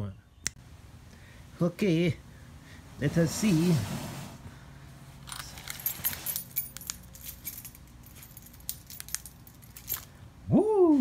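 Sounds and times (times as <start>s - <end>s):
keys jangling: 5.2s - 10.2s
man exclaiming: 10.5s - 11.0s.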